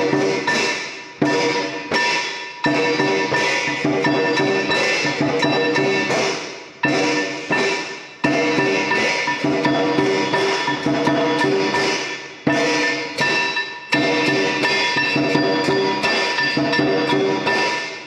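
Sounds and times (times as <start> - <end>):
ringing percussion strikes: 0.0 - 18.0.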